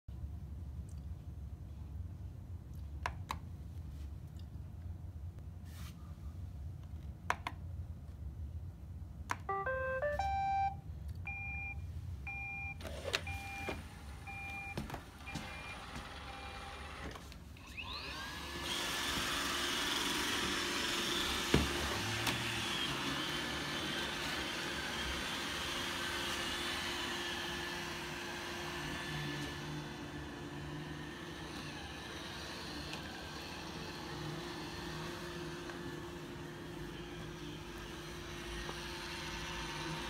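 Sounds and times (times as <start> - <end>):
rising electronic tune: 9.5 - 10.8
electronic beeps: 9.5 - 13.7
robot vacuum motors whining: 12.8 - 40.0.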